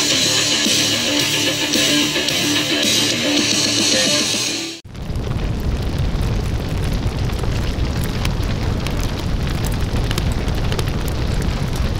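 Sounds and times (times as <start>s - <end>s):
fire crackling: 4.8s - 11.9s
fire roaring: 4.8s - 11.9s.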